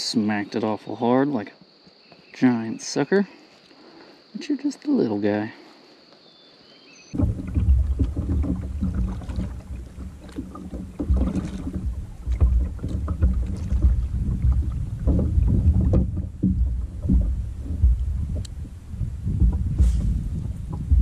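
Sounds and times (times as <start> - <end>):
paddle splashing in water: 7.1 - 21.0
wind buffeting microphone: 7.2 - 21.0.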